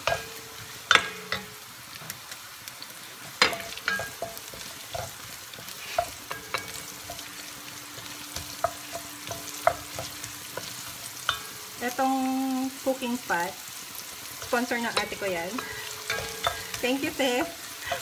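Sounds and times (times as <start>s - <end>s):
onion sizzling in hot oil: 0.0s - 18.0s
wooden spatula knocking on pot: 3.4s - 5.2s, 8.3s - 11.6s.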